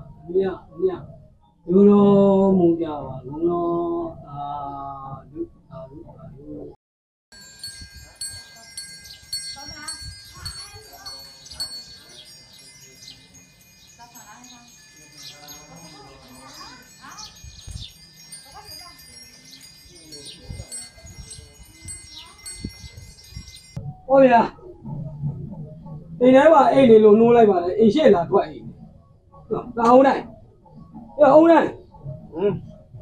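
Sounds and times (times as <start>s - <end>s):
chimes tinkling: 7.3s - 23.8s.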